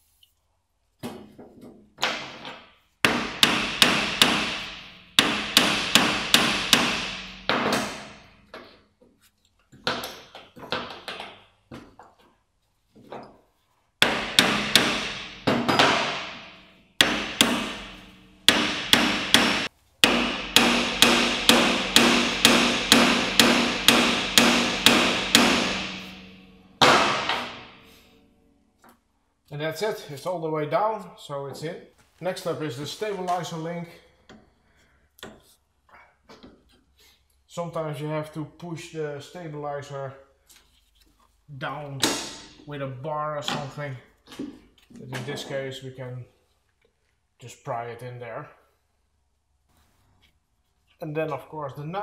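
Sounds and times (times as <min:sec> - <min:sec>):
hammer blows on steel: 0:03.1 - 0:08.5, 0:14.0 - 0:28.1.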